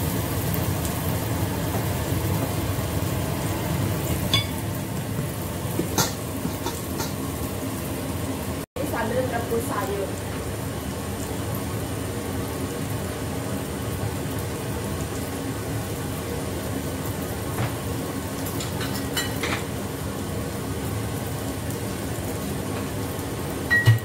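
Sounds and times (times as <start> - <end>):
omelette sizzling in oil: 0.0 - 23.8
kitchenware clinking: 4.1 - 4.7, 5.8 - 7.2, 18.5 - 19.7, 23.7 - 24.0
liquid simmering in pan: 10.0 - 23.9.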